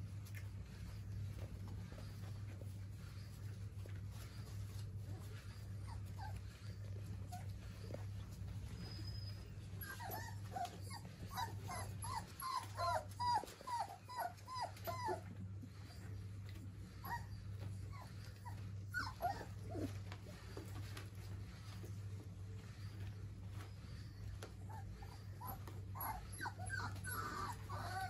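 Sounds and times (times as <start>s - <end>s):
puppies whimpering: 0.2s - 28.0s.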